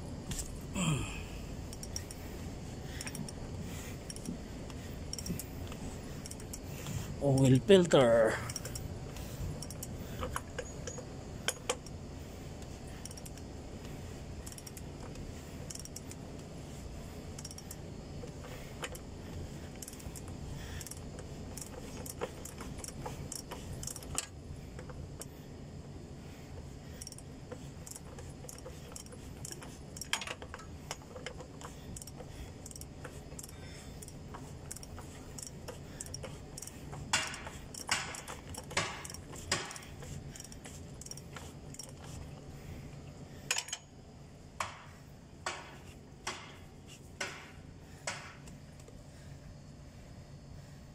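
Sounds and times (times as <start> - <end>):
light metal clinks: 0.3 - 12.1, 17.0 - 25.3, 26.8 - 44.0
ratchet wrench clicking: 1.6 - 12.0, 12.6 - 25.4, 26.3 - 42.4, 43.4 - 43.9.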